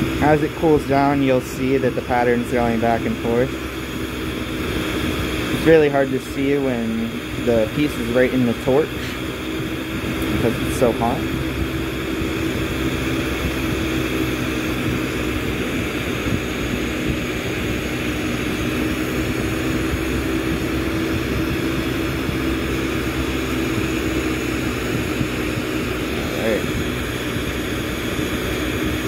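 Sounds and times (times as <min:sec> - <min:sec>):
low hum: 0:00.0 - 0:29.0
torch burning with rushing roar: 0:00.0 - 0:29.0.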